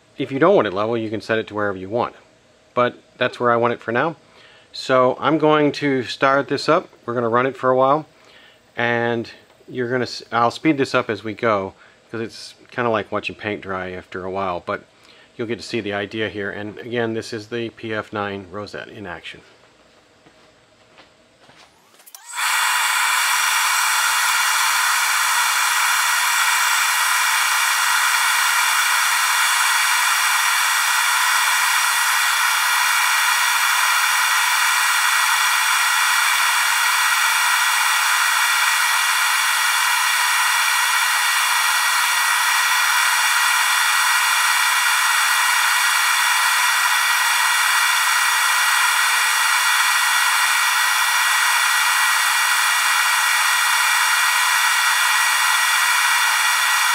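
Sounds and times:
dust extraction vacuum hiss: 3.3s - 12.6s, 21.7s - 56.9s
lathe cutter whining: 21.8s - 56.9s.

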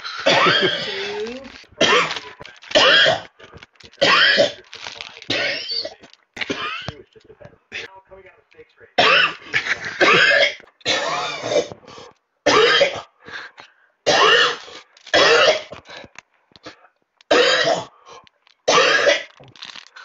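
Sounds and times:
loud harsh coughing: 0.0s - 1.2s, 1.8s - 7.0s, 9.0s - 15.8s, 17.3s - 18.0s, 18.7s - 19.3s.

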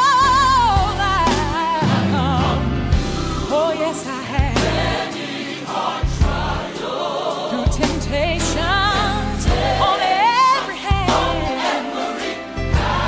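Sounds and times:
bass and drums: 0.0s - 5.1s, 6.0s - 6.7s, 7.7s - 9.9s, 10.9s - 11.6s, 12.7s - 13.0s
choir singing gospel: 0.0s - 13.0s.

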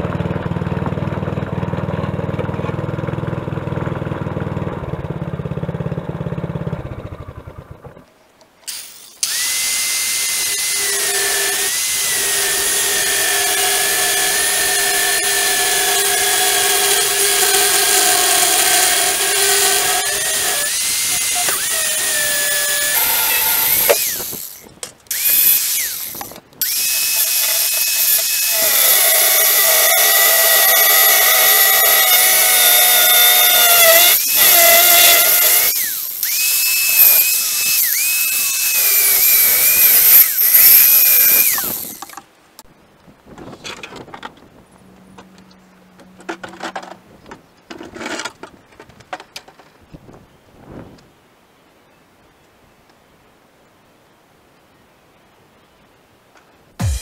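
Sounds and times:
angle grinder cutting steel: 8.7s - 42.2s, 56.8s - 57.0s.

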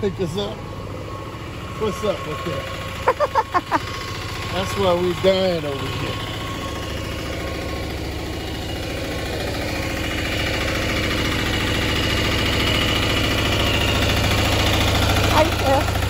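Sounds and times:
golf cart engine droning: 0.0s - 16.0s.

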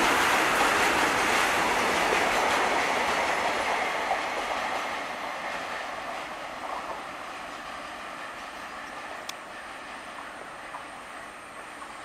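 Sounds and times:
goods train rumbling past: 0.0s - 12.0s.

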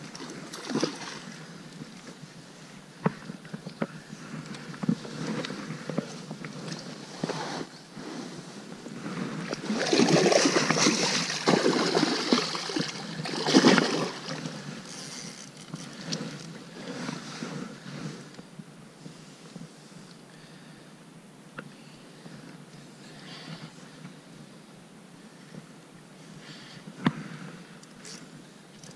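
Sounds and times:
fish splashing in water: 9.6s - 14.4s.

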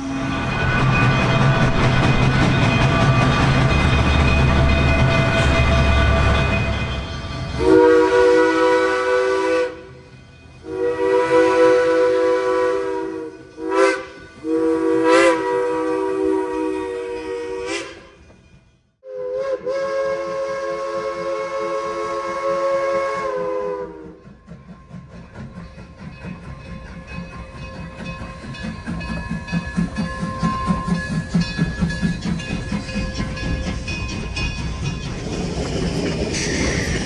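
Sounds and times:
steam locomotive chime whistle: 0.0s - 37.0s
train low rumble: 0.0s - 37.0s.

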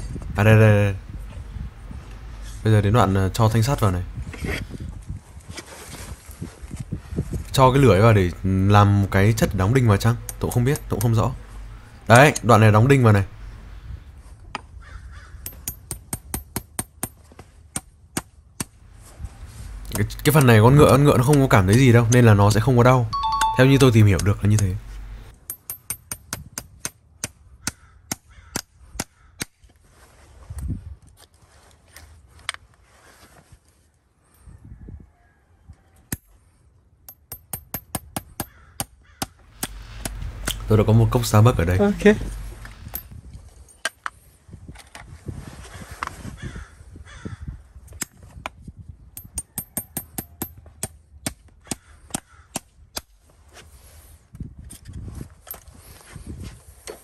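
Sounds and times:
hammer tapping nails into horseshoe: 10.2s - 11.2s, 15.4s - 17.2s, 25.4s - 29.1s, 37.1s - 40.7s, 49.2s - 53.1s.

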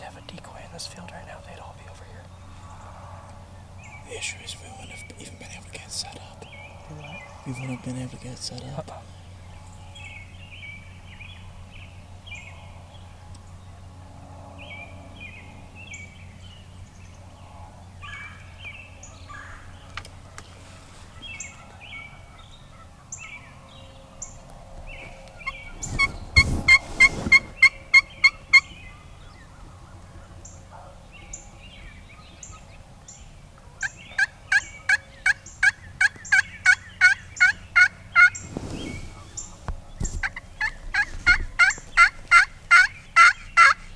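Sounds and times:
turkey call yelps: 33.8s - 38.4s, 40.3s - 43.9s.

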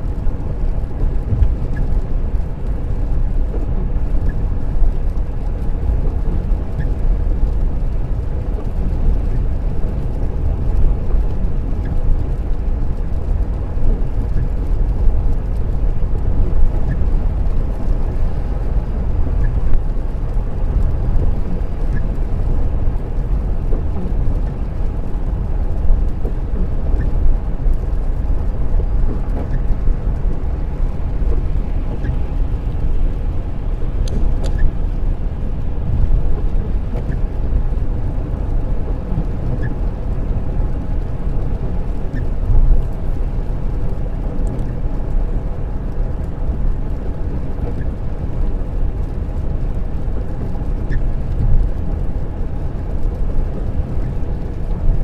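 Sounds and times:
tyres on wet road: 0.0s - 55.0s
faint tick: 34.0s - 35.0s.

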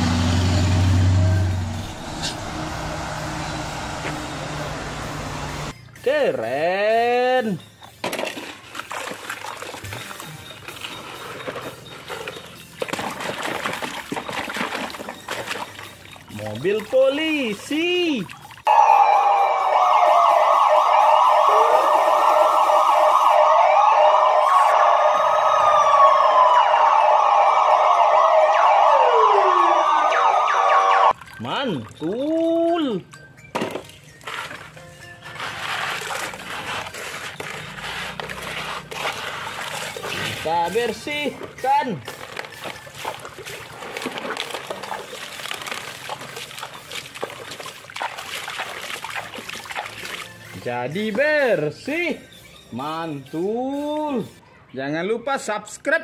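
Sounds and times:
police sirens wailing: 0.0s - 5.7s, 18.6s - 31.2s
muddy water splashing: 7.8s - 23.4s, 31.1s - 51.6s.

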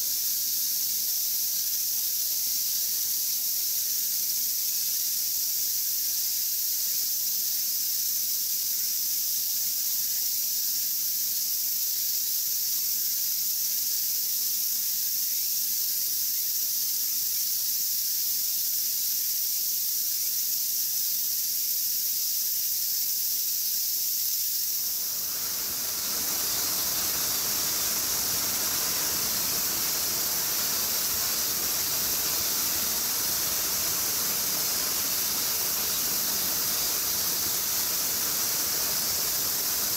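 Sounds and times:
high-pitched outdoor hiss: 0.0s - 39.9s
broad rushing noise: 24.9s - 39.9s.

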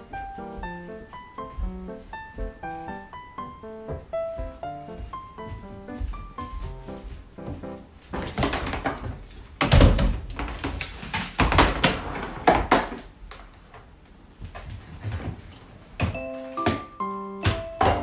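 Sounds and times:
piano music: 0.0s - 8.3s, 16.0s - 18.0s.

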